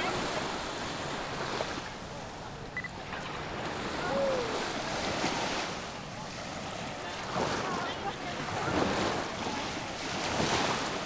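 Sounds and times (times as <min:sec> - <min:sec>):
surf washing on shore: 0:00.0 - 0:11.0
faint voices: 0:01.8 - 0:10.0.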